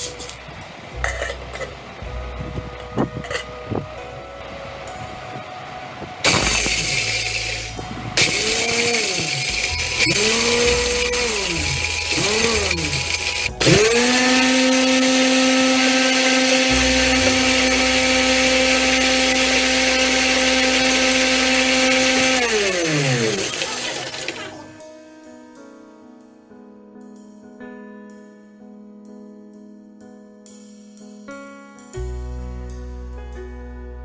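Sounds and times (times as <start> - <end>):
mixer grinder motor: 6.2 - 24.7
dry load grinding in steel bowl: 6.3 - 24.6.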